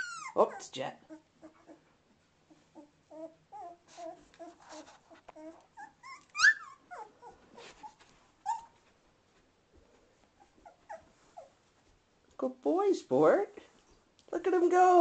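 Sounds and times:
puppies whimpering and squeaking: 0.0 - 1.9, 2.5 - 8.8, 10.4 - 11.6.

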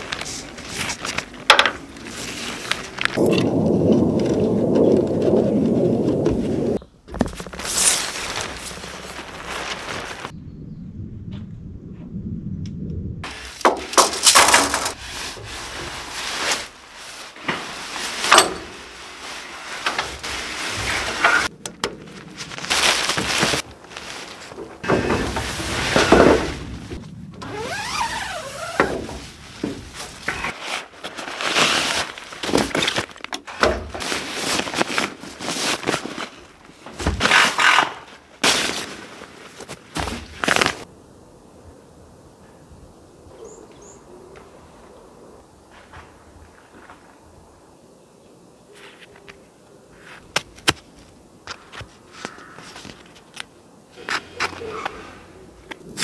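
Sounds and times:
tent fabric rustling: 0.0 - 3.3, 4.8 - 10.3, 13.2 - 33.3, 33.9 - 40.9
tent poles knocking and clicking: 13.6 - 15.0.

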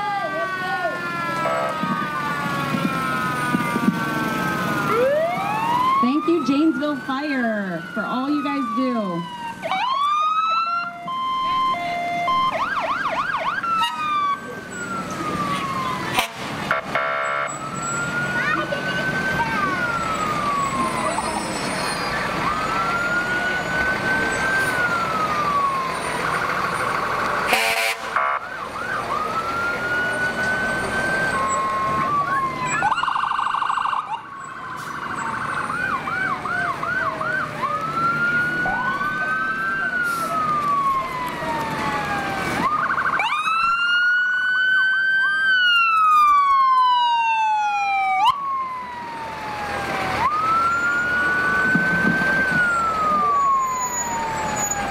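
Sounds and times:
emergency vehicle sirens wailing: 0.0 - 54.9
siren fast yelping: 30.9 - 34.3.

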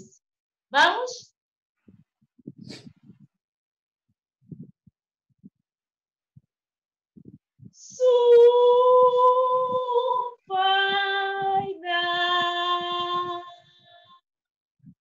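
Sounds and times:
woman singing long held notes: 7.8 - 14.1.

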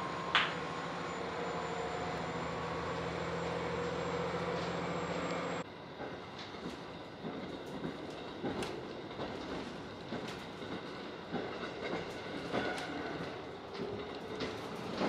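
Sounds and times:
diesel railcar engine drone: 0.0 - 15.0
wheels clicking over rail joints: 4.4 - 15.0.

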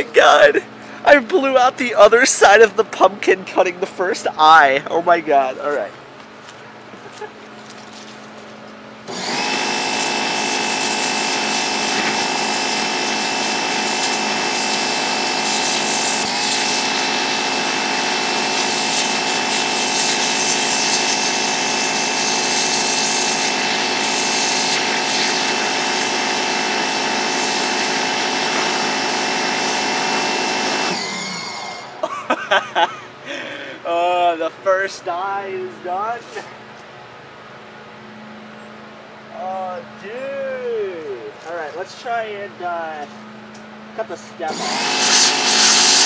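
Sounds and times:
pressure washer drone: 7.1 - 36.7, 40.9 - 46.0
water jet hissing: 9.1 - 31.9, 44.5 - 46.0.

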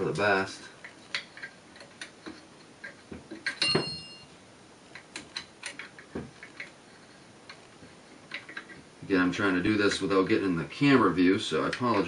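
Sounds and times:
clicks and taps of metal parts: 0.8 - 4.0, 4.9 - 6.8, 8.3 - 8.8
metallic clink: 2.8 - 4.3.

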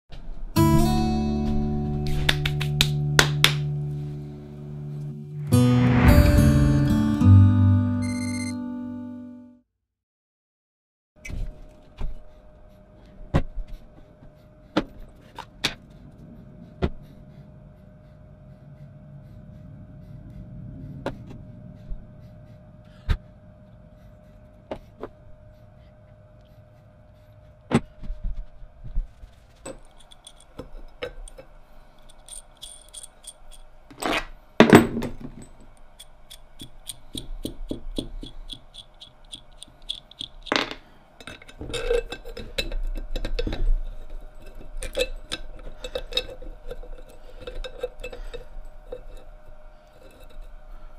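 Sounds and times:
metal parts clinking on workbench: 29.7 - 35.7, 38.6 - 49.1.

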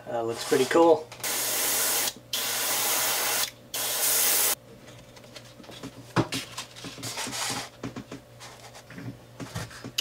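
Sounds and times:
airbrush spraying hiss: 1.4 - 4.6.

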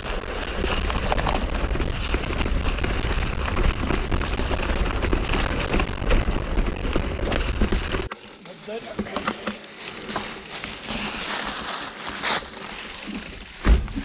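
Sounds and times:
bike rattling: 0.0 - 14.0
leaves crackling under bike tyres: 0.0 - 14.0.

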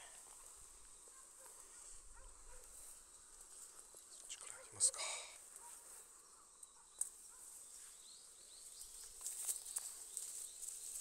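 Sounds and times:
footstep rustles: 0.2 - 4.1, 5.4 - 6.2, 7.3 - 11.0.

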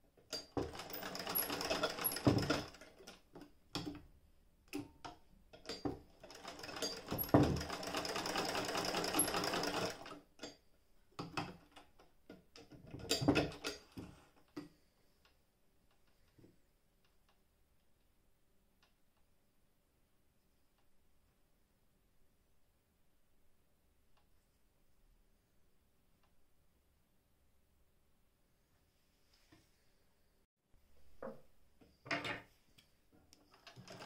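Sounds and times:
hand-crank sewing machine ticking: 0.3 - 3.2, 5.7 - 10.2, 33.5 - 34.0.

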